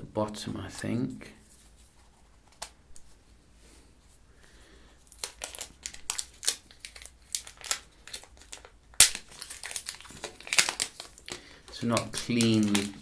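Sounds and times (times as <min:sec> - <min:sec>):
plastic film peeling and crinkling: 0:05.0 - 0:13.0.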